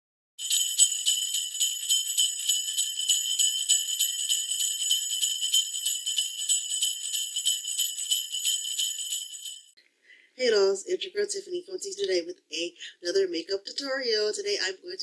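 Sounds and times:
sleigh bells jingling: 0.4s - 9.8s.

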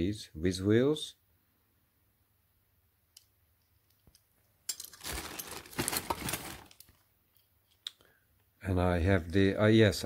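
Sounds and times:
plastic bag crinkling: 4.7s - 7.0s.

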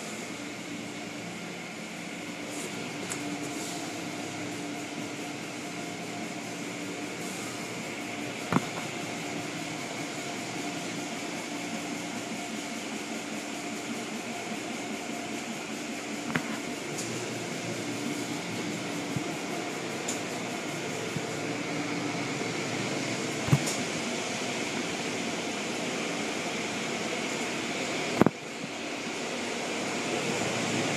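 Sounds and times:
wash machinery hum: 0.0s - 30.9s
brushes against car body: 2.4s - 4.0s.

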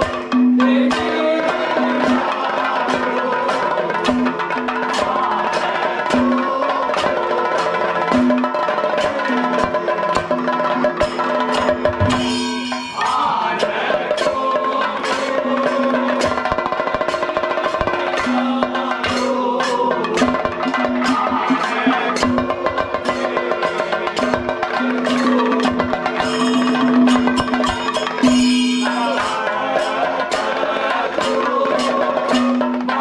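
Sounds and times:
group of men singing: 0.0s - 33.0s
hand cymbals clashing: 7.0s - 30.6s.

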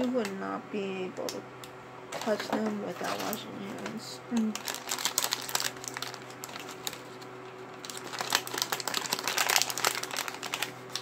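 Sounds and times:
crinkly wrapper being unwrapped: 4.4s - 11.0s.

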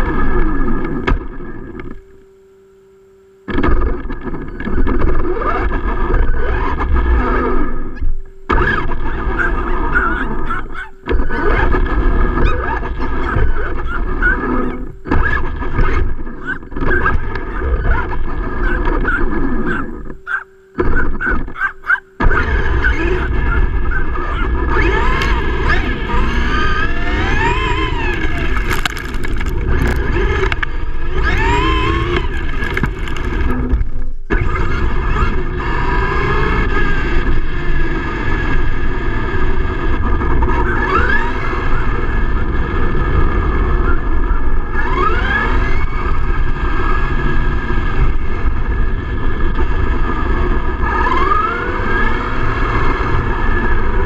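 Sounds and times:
electric motor whining: 0.0s - 54.0s
tyres rumbling on rough asphalt: 22.2s - 54.0s.

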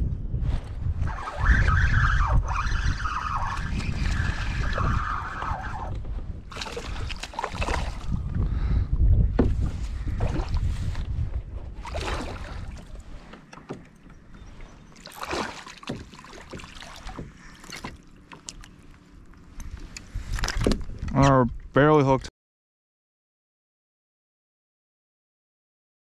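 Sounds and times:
wind buffeting microphone: 0.0s - 17.6s, 19.5s - 21.9s
wavering high whine: 1.0s - 6.1s
water splashing around a kayak: 1.0s - 8.4s, 9.4s - 21.0s.

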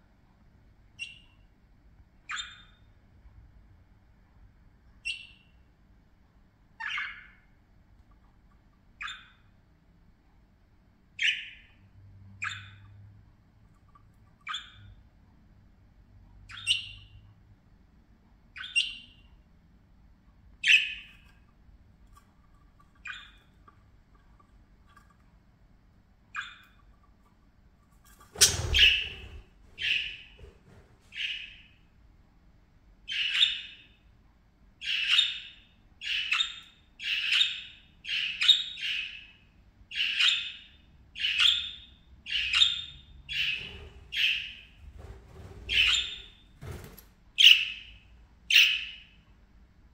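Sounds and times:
budgerigars chirping and squawking: 2.3s - 2.8s, 6.8s - 7.5s, 9.0s - 9.4s, 11.2s - 11.8s, 12.4s - 13.0s, 13.8s - 15.0s, 16.5s - 17.2s, 18.5s - 19.3s, 20.6s - 21.4s, 22.2s - 25.1s, 26.3s - 27.2s, 28.4s - 31.8s, 33.1s - 34.0s, 34.8s - 46.4s, 47.4s - 49.1s.

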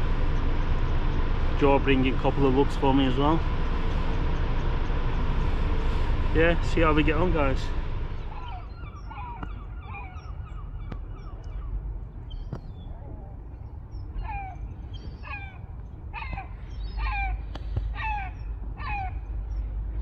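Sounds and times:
gulls calling: 0.0s - 20.0s
steady low rumble: 0.0s - 20.0s.

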